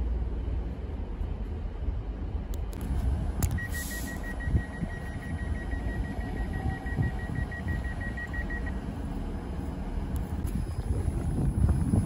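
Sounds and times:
low rumble: 0.0s - 12.0s
rapid high beeping: 3.6s - 8.8s.

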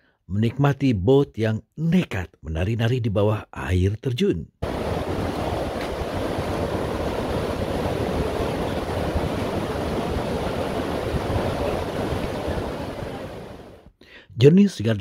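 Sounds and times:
rapids rushing water: 4.6s - 13.8s.

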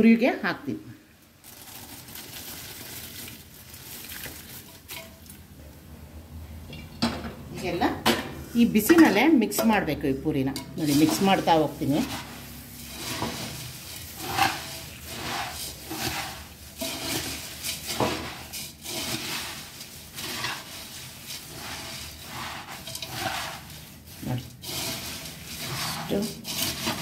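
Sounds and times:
puffed rice rustling: 1.4s - 5.0s, 10.8s - 27.0s
spoon scraping metal pot: 8.7s - 27.0s.

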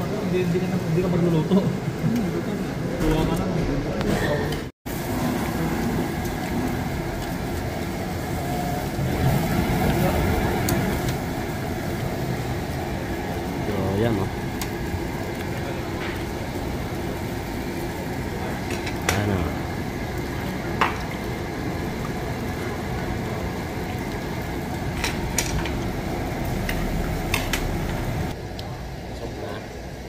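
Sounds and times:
meat sizzling on grill: 4.9s - 28.4s
utensils and dishes clinking: 24.9s - 25.8s, 26.6s - 28.0s.

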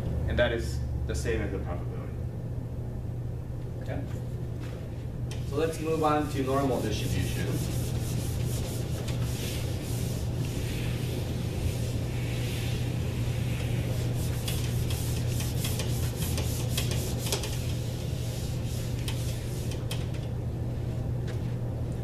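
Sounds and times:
steady low hum: 0.0s - 22.0s
eraser rubbing on whiteboard: 5.5s - 19.9s.

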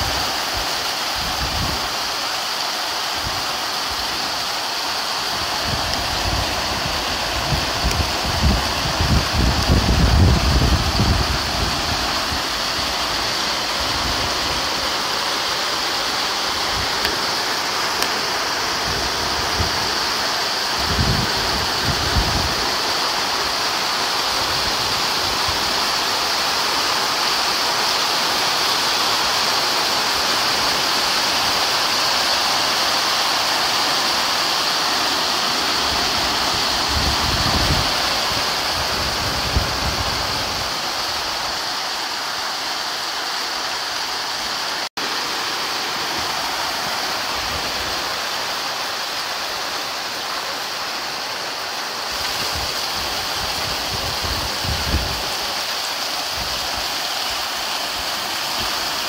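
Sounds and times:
rain falling steadily: 0.0s - 59.0s
wind rumble on microphone: 1.2s - 1.9s, 5.3s - 12.9s, 18.7s - 22.8s, 36.2s - 41.6s, 52.1s - 55.5s.

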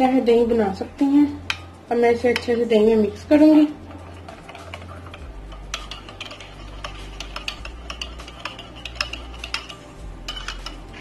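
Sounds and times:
spoon scraping ceramic bowl: 3.7s - 11.0s.

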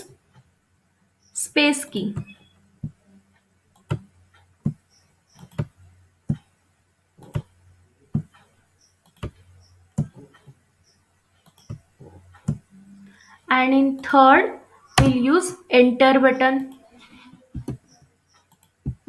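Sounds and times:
faint low hum: 0.0s - 19.0s
keyboard space bar presses: 15.0s - 15.2s.

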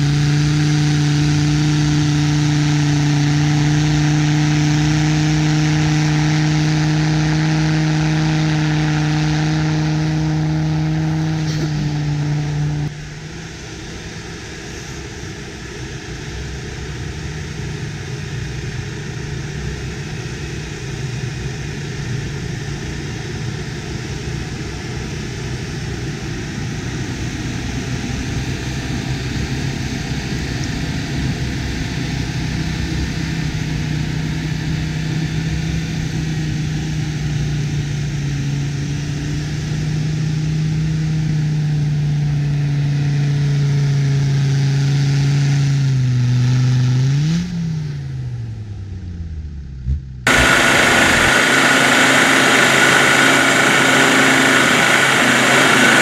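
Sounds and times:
engine revving high: 0.0s - 13.0s, 49.9s - 56.0s
steady rushing noise: 50.2s - 56.0s
tyres spinning in snow: 50.3s - 56.0s.

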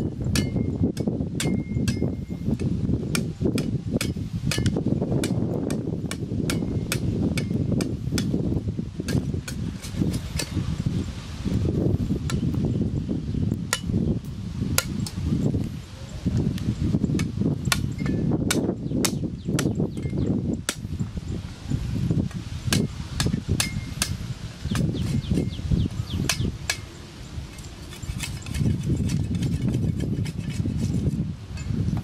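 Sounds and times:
knife chopping and scraping: 9.1s - 10.6s, 27.5s - 31.7s.

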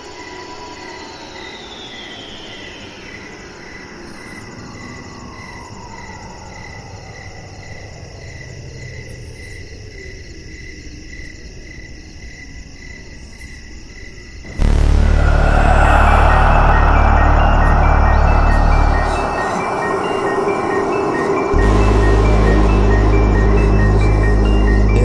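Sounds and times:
crickets chirping: 0.0s - 25.0s
eerie drone sliding down: 14.5s - 25.0s.

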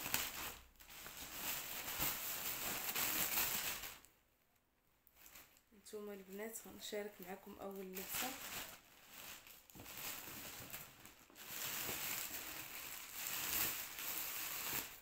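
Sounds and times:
clothes packaging rustling: 0.0s - 4.1s, 5.1s - 15.0s.

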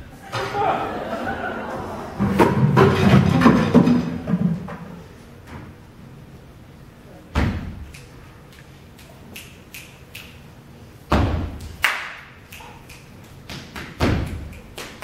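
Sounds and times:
heavy echoing drum thumps: 11.1s - 11.7s.

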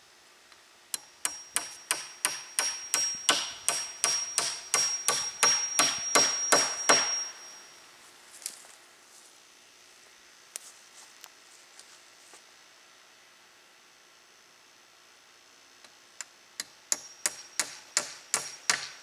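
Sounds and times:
hatchet striking wooden pole: 1.0s - 7.4s, 16.6s - 19.0s.

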